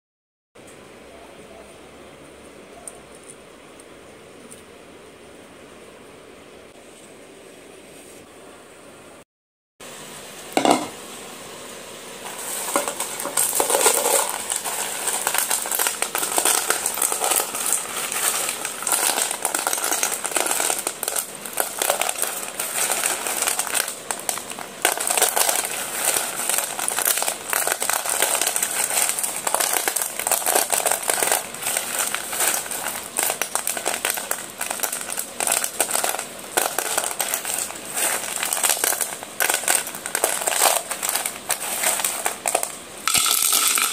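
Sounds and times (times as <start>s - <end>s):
pencil sticks clattering in metal bowl: 12.3s - 43.9s.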